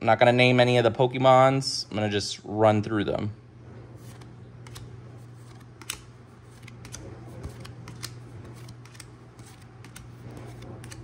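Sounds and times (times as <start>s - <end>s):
steady low hum: 0.0s - 11.0s
cards snapping and sliding: 4.0s - 11.0s.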